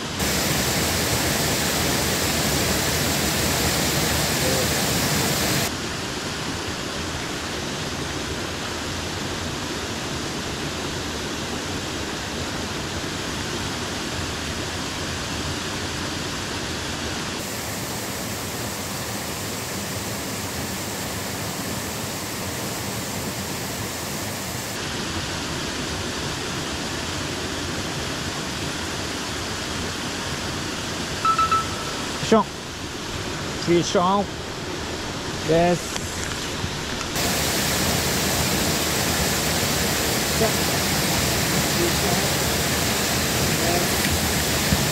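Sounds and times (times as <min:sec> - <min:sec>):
water rushing over a weir: 0:00.0 - 0:44.9.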